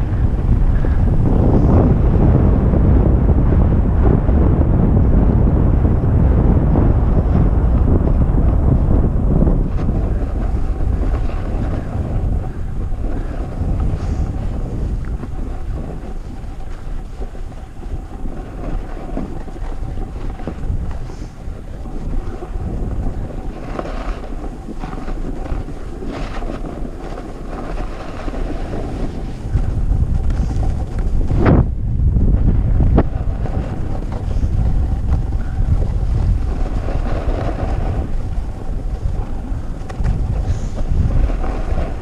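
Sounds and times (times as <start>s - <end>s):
wind buffeting microphone: 0.0s - 42.0s
edges scraping on snow: 9.7s - 31.4s, 33.0s - 42.0s.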